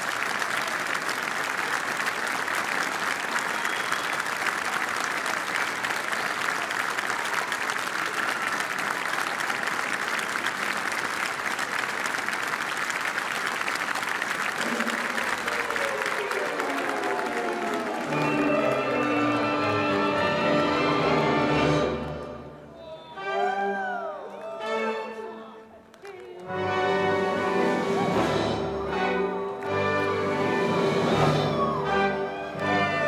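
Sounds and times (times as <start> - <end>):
audience applauding: 0.0 - 22.3, 25.8 - 26.7, 29.2 - 33.0
orchestral music: 14.5 - 25.8, 26.4 - 33.0.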